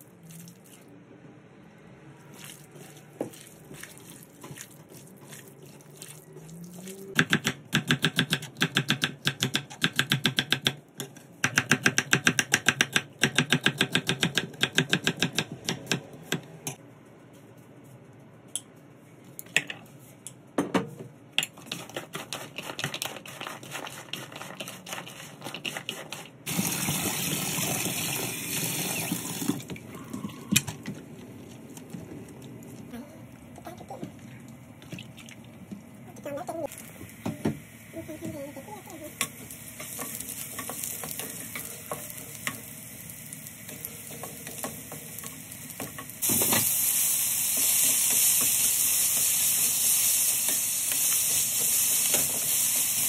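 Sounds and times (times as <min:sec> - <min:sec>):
hands kneading wet meat: 0:02.3 - 0:07.2
kitchen tap running: 0:26.5 - 0:29.8.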